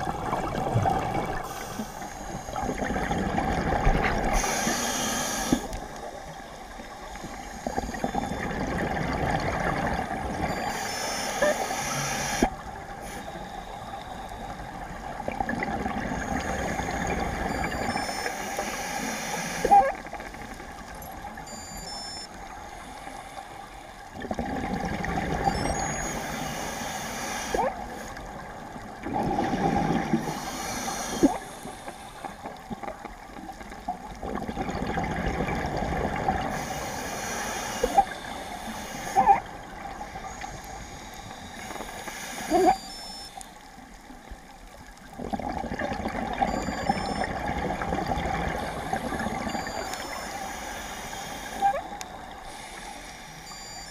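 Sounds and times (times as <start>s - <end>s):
regulator bubbles gurgling underwater: 0.0s - 26.5s, 27.4s - 53.9s.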